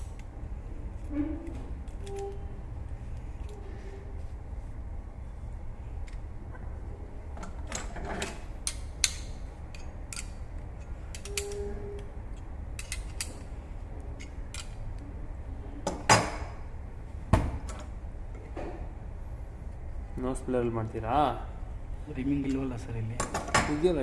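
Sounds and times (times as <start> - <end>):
steady low hum: 0.0 - 24.0
metal tool clicks and clinks: 8.6 - 11.6, 12.3 - 13.4, 14.2 - 14.8.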